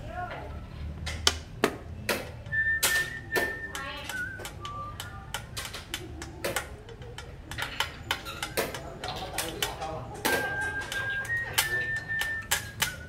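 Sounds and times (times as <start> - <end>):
wooden pieces clacking on board: 1.0 - 13.0
person whistling: 2.5 - 5.4, 10.2 - 13.0.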